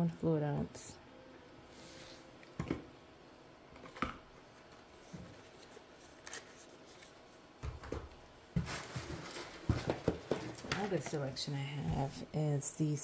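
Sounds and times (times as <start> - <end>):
soft taps and rustles of packaging: 3.9 - 12.1.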